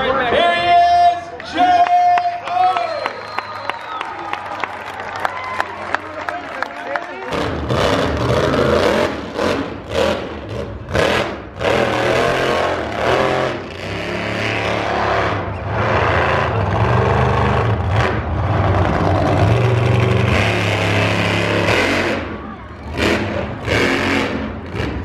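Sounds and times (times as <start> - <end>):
monster truck engine revving: 7.1 - 25.0.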